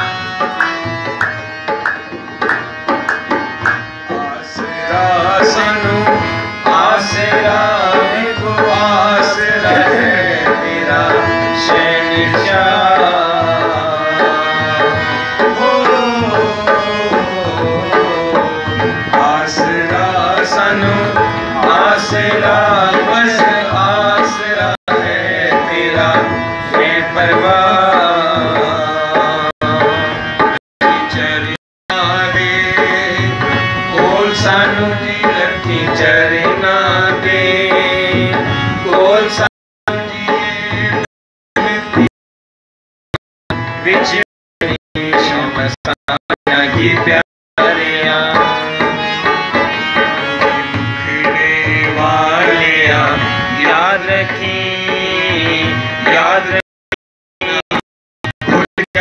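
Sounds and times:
harmonium chords: 0.0 - 42.1, 43.5 - 56.6, 57.4 - 59.0
hand drum beat: 0.5 - 4.2, 9.6 - 10.3
person singing ornamented melody: 6.7 - 15.0.

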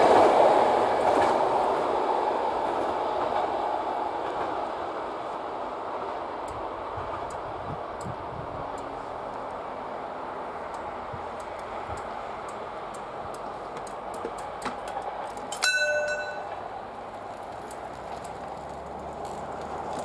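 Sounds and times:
steady outdoor hiss: 0.0 - 20.0
loud metallic clang: 15.6 - 16.6.

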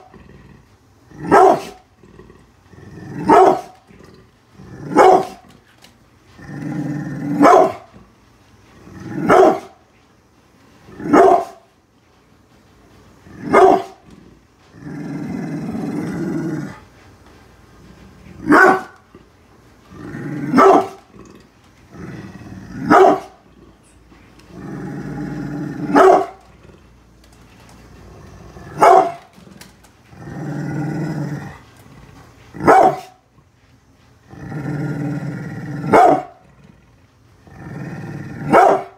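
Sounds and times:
dog growling: 0.0 - 9.8, 13.2 - 33.4, 34.2 - 38.9
dog barking: 1.3 - 1.8, 3.3 - 3.8, 4.9 - 5.4, 7.4 - 7.9, 9.2 - 9.8, 11.1 - 11.6, 13.5 - 14.0, 18.4 - 19.0, 20.5 - 21.0, 22.8 - 23.4, 25.9 - 26.4, 28.8 - 29.3, 32.6 - 33.2, 35.9 - 36.4, 38.4 - 38.9.

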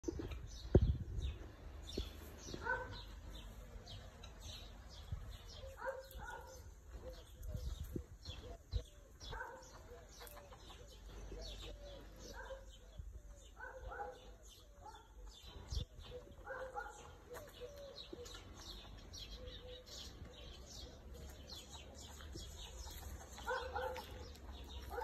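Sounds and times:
small birds chirping: 0.0 - 25.0
chicken clucking: 7.0 - 12.4, 20.9 - 25.0.

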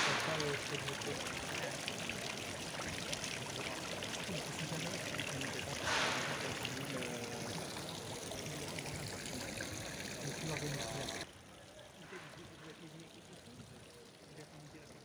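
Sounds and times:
fountain splashing into stone basins: 0.0 - 15.0.

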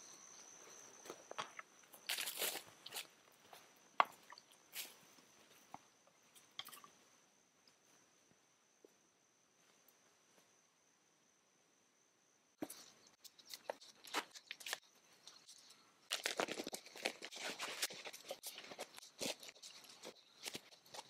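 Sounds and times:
leaves crunching: 2.0 - 3.1.

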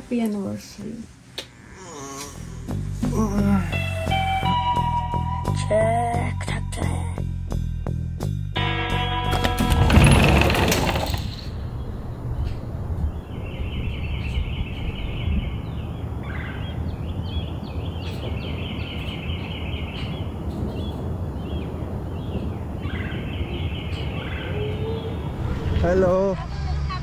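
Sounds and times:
bird chirps: 11.6 - 25.6
bird trills: 13.3 - 25.3.

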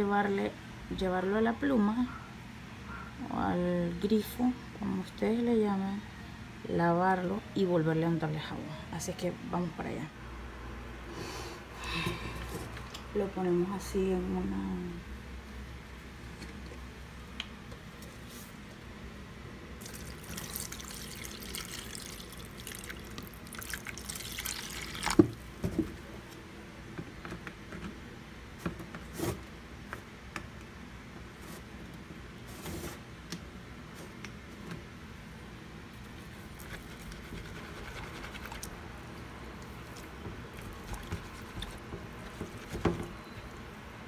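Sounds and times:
water dripping: 19.8 - 25.2
water running into plastic basin: 19.8 - 25.4, 39.6 - 43.1.

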